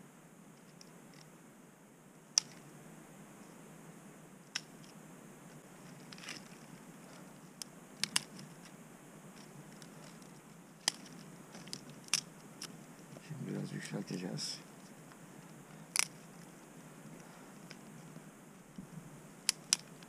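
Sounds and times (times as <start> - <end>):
quiet handling of twigs: 0.5 - 1.3, 4.4 - 20.0
dry twigs snapping: 5.9 - 8.8, 9.4 - 13.2, 14.8 - 16.5, 19.4 - 20.0.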